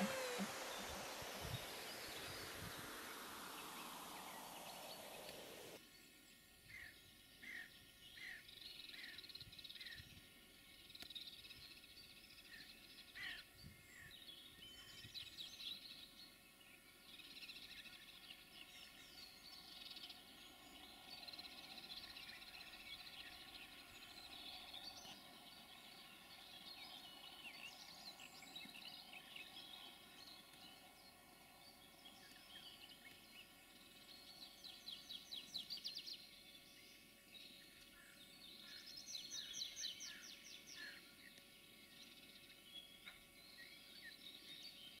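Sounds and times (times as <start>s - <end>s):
fast bird trills: 0.0s - 5.8s
small birds chirping: 0.0s - 5.8s, 10.7s - 45.0s.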